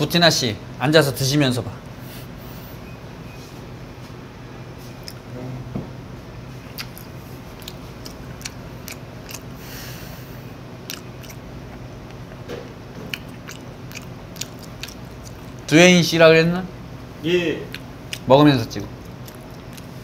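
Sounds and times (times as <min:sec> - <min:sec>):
low room hum: 0:00.0 - 0:20.0
person chewing: 0:04.9 - 0:05.3, 0:06.6 - 0:15.7, 0:17.7 - 0:18.3, 0:18.9 - 0:20.0.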